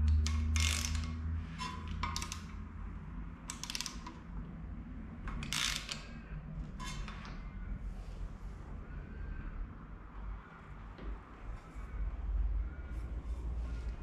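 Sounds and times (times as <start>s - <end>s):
ratchet wrench clicking: 0.0s - 2.7s, 3.4s - 4.2s, 5.3s - 6.2s
low steady hum: 0.0s - 14.0s.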